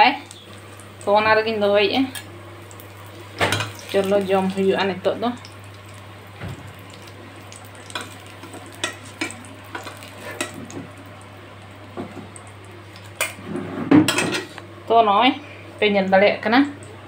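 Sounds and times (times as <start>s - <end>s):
food sizzling in oil: 0.0s - 14.8s.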